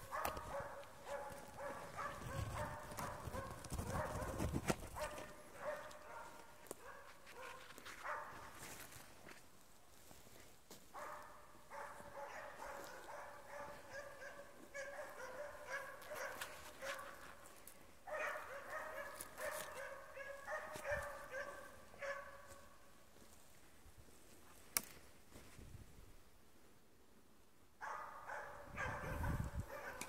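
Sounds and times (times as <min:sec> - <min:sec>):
dogs barking: 0:00.0 - 0:08.5, 0:11.0 - 0:17.2, 0:18.1 - 0:22.7, 0:27.8 - 0:30.0.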